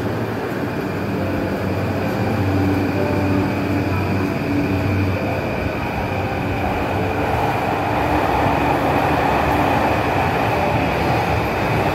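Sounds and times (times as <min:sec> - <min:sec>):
electric train pulling out: 0:00.0 - 0:11.9.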